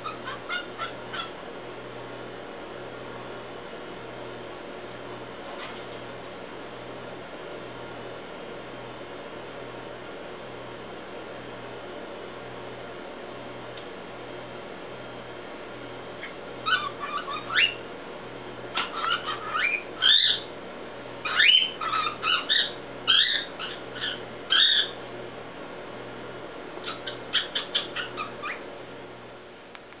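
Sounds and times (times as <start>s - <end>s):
cockatiel whistling and chirping: 0.0s - 1.3s, 16.6s - 17.8s, 18.8s - 20.5s, 21.2s - 25.0s, 26.8s - 28.6s.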